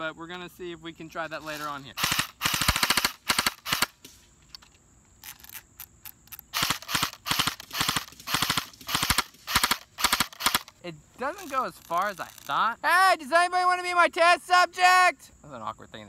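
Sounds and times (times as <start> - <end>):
airsoft rifle bursts: 1.5 - 4.2, 6.2 - 12.5.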